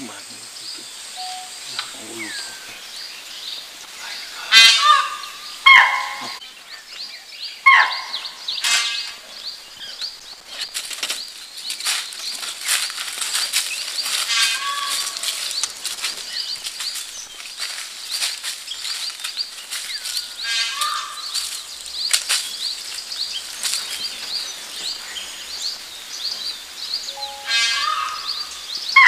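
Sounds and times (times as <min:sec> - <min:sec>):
harsh bird calls: 0:00.0 - 0:29.0
short high chirps: 0:01.2 - 0:01.6, 0:27.1 - 0:27.9
scattered crackles: 0:10.0 - 0:25.1.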